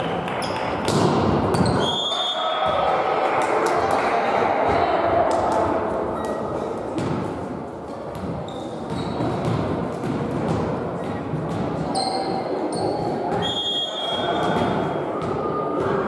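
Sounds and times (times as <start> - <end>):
players' voices echoing: 0.0 - 16.0
ball bouncing on wooden court: 0.4 - 1.8, 7.0 - 7.3, 8.1 - 13.6.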